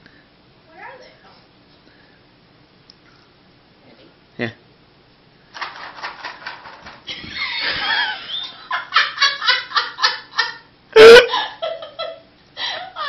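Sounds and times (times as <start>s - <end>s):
person laughing: 7.1s - 13.0s.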